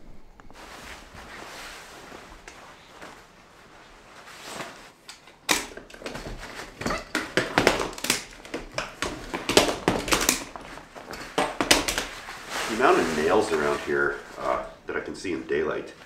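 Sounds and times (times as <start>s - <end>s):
fabric rustling: 0.0s - 16.0s
sleeping bag rustling: 0.0s - 16.0s
camp cot poles clicking: 5.0s - 12.2s.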